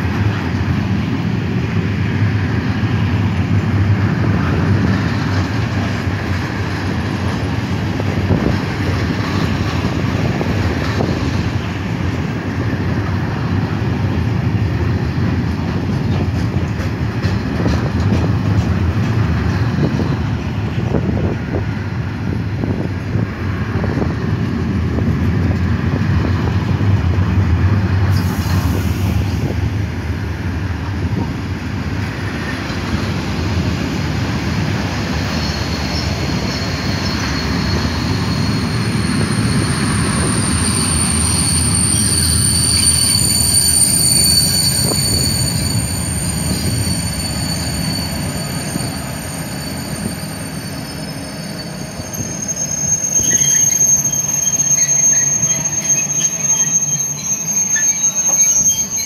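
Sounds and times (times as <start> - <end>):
train wheels rumbling on rail: 0.0 - 59.0
high steady squeal: 32.5 - 59.0.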